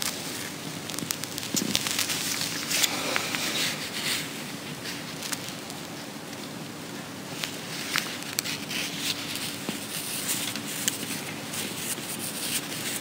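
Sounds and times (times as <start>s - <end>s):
clothing rustle: 0.0s - 13.0s
faint hum: 0.0s - 13.0s
room hiss: 0.0s - 13.0s.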